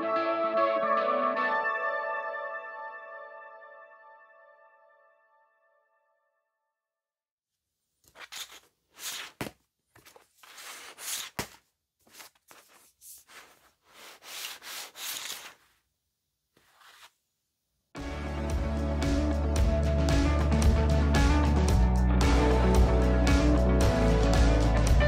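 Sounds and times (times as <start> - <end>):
music: 0.0 - 6.9, 18.0 - 25.0
dry rubbing strokes: 10.1 - 15.8, 16.6 - 17.2.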